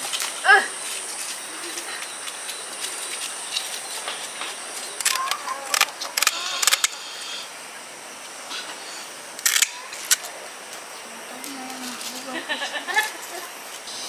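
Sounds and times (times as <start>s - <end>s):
steady background noise: 0.0s - 14.0s.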